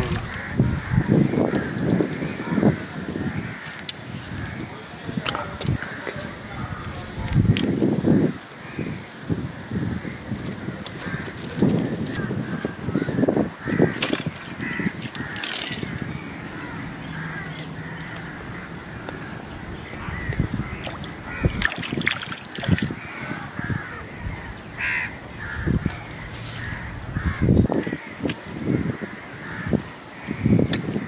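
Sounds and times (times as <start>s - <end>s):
crows cawing: 0.0s - 4.7s, 5.7s - 6.9s, 8.0s - 31.0s
splashes: 13.8s - 16.1s, 20.6s - 23.2s.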